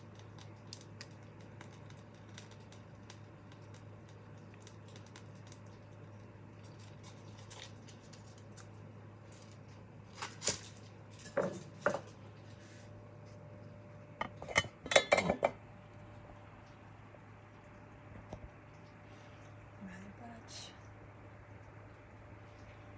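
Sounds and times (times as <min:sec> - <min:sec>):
steady low hum: 0:00.0 - 0:22.9
utensils and dishes clattering: 0:14.2 - 0:15.6.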